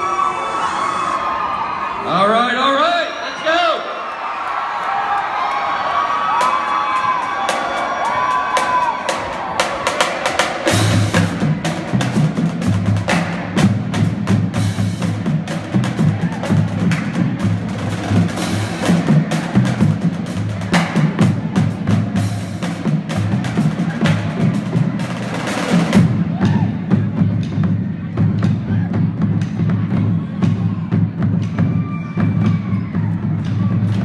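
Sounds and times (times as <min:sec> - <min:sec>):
crowd whoops: 0:00.0 - 0:02.1, 0:03.1 - 0:09.6, 0:26.3 - 0:26.9, 0:30.3 - 0:34.0
pitched bass drums: 0:08.6 - 0:34.0.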